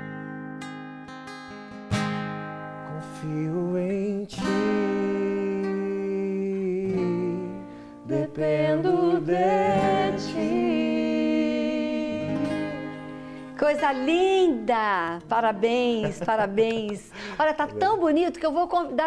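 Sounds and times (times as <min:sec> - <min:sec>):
acoustic guitar strumming: 0:00.0 - 0:18.5
man singing: 0:02.9 - 0:13.0.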